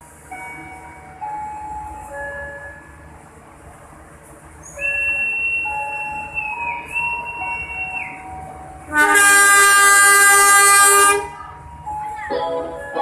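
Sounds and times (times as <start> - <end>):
train low rumble: 0.0 - 13.0
train horn long note: 8.9 - 11.3.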